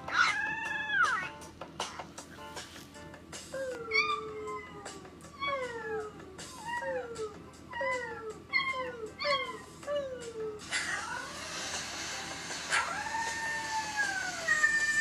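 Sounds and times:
puppies howling and whining: 0.0s - 1.3s, 3.5s - 11.4s, 12.7s - 15.0s.

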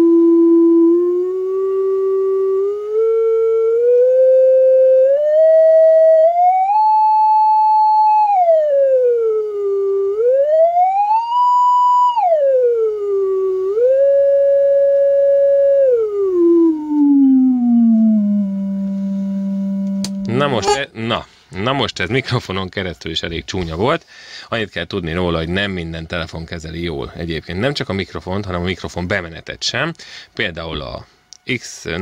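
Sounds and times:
sine tone gliding in pitch: 0.0s - 20.7s.

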